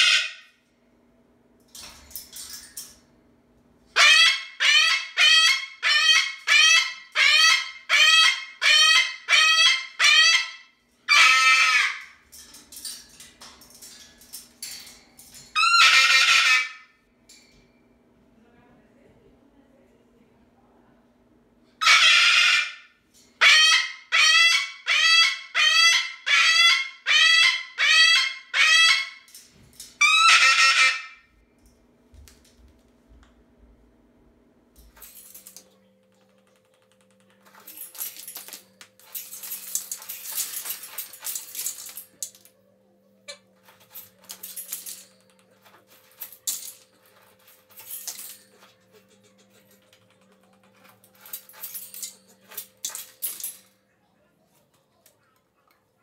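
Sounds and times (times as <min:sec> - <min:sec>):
cockatoo screaming: 0:00.0 - 0:00.5, 0:04.0 - 0:12.1, 0:15.6 - 0:16.9, 0:21.8 - 0:29.3, 0:30.0 - 0:31.2
faint steady hum: 0:00.0 - 0:22.1, 0:27.0 - 0:56.0.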